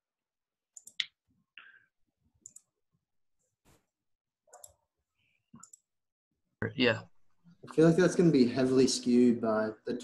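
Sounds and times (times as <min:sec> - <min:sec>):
faint computer mouse clicks: 0:04.5 - 0:04.8.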